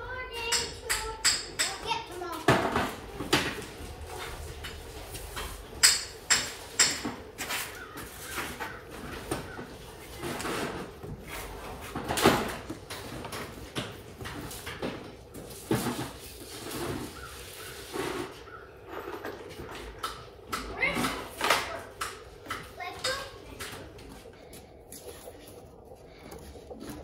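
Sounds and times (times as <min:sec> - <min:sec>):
tools knocking and clattering: 0:05.4 - 0:07.3.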